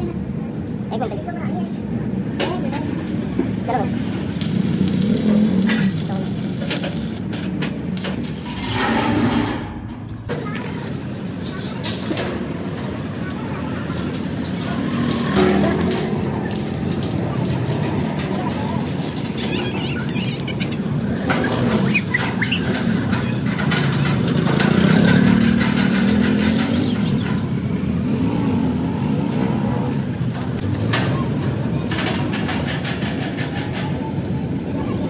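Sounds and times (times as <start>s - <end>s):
low mechanical rumble: 3.1s - 11.3s.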